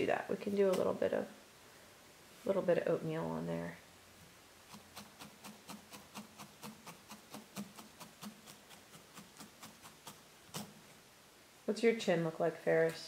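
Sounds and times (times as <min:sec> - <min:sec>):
felting needle ticking into wool: 0:04.7 - 0:10.8.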